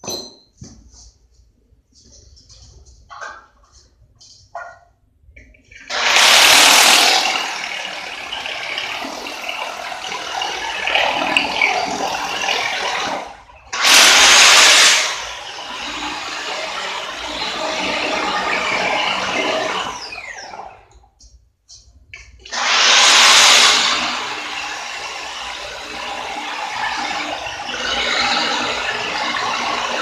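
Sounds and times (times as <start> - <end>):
electric drill boring into wall: 5.7 - 20.9, 22.4 - 30.0.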